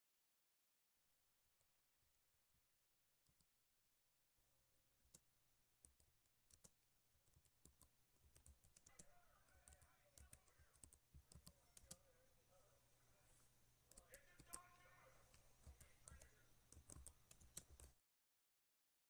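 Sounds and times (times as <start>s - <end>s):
typing on computer keyboard: 5.8s - 12.0s, 13.9s - 18.0s.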